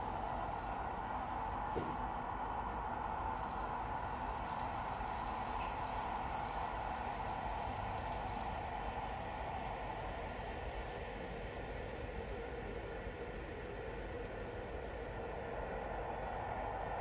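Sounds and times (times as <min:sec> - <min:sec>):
wind-blown sand hissing: 0:00.0 - 0:01.7, 0:03.0 - 0:08.6.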